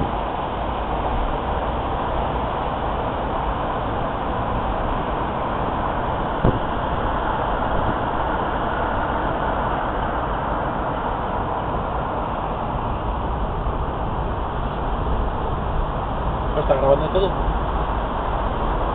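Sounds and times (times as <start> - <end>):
car road and wind noise: 0.0 - 18.9
short knock: 6.4 - 6.6.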